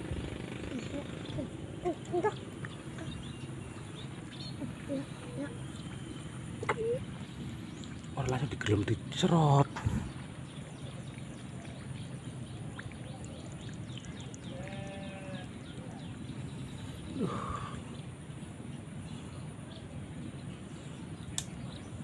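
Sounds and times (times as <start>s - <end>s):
distant animal call: 4.4s - 7.3s, 14.4s - 15.8s.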